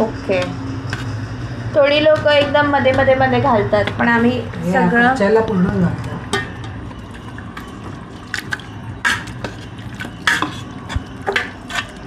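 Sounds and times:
wet plops and splats: 7.1s - 11.5s.

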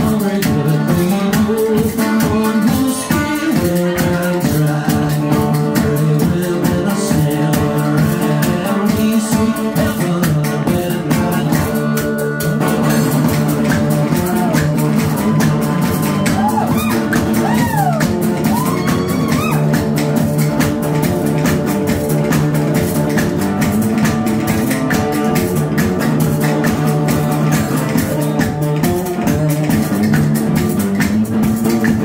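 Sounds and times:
banjo: 0.0s - 32.0s
sliding bending lead notes: 10.1s - 32.0s
kick drum beat: 13.3s - 32.0s.

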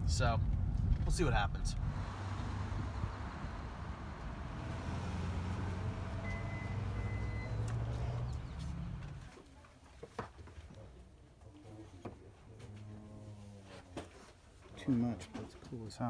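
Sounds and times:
low rumble of vehicles: 0.0s - 9.4s
double electronic beep: 6.2s - 7.6s.

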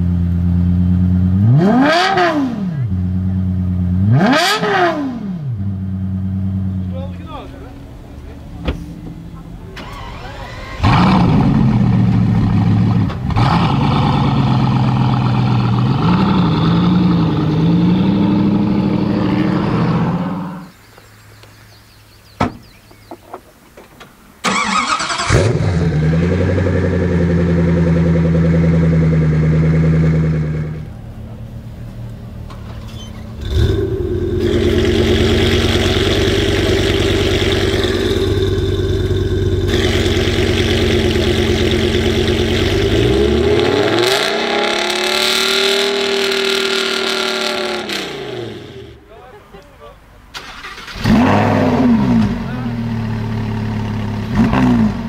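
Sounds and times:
car engine cranking and idling: 5.4s - 55.0s
engine starting and revving: 9.6s - 20.5s, 24.4s - 30.9s, 32.8s - 49.0s, 50.3s - 55.0s.

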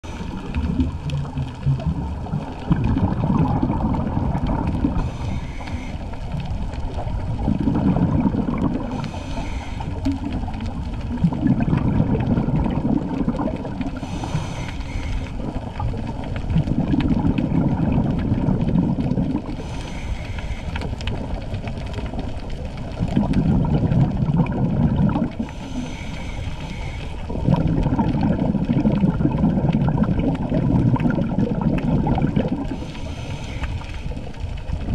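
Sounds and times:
regulator inhale hiss: 0.0s - 0.7s, 4.8s - 6.4s, 8.8s - 10.3s, 13.8s - 15.9s, 19.5s - 21.3s, 25.4s - 27.5s, 32.6s - 34.3s
bubbling of exhaled air: 0.0s - 34.9s.

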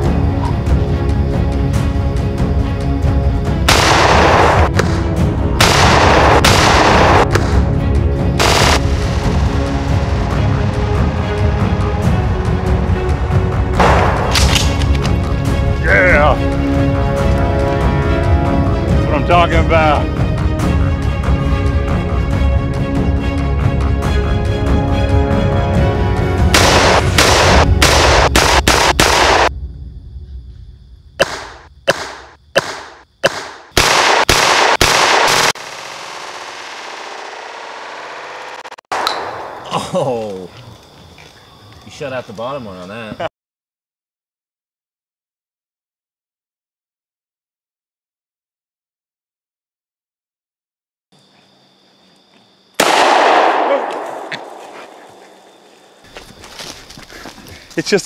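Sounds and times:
background music: 0.0s - 29.5s
shotgun blasts: 3.7s - 5.0s, 5.6s - 7.6s, 8.4s - 8.9s, 13.8s - 14.8s, 26.5s - 29.5s, 31.2s - 36.7s, 52.8s - 55.0s.

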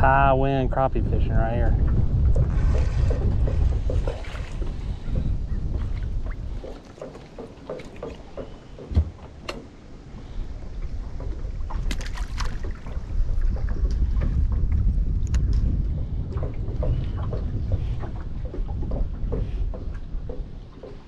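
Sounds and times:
wind gusting on microphone: 0.0s - 21.0s
sharp knock in boat: 3.1s - 9.8s.

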